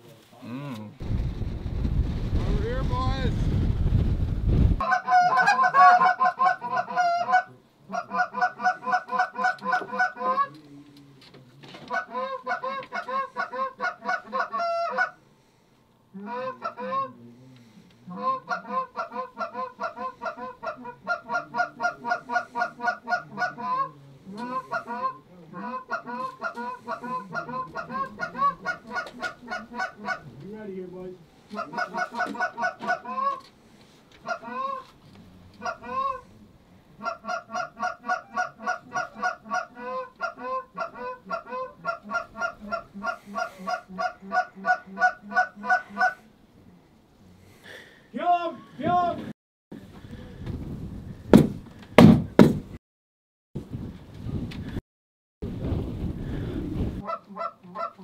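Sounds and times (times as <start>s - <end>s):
goose honking and clucking: 4.8s - 10.6s, 11.9s - 15.2s, 16.2s - 17.2s, 18.1s - 30.4s, 31.5s - 33.5s, 34.2s - 35.0s, 35.6s - 36.3s, 37.0s - 46.3s, 57.0s - 58.0s.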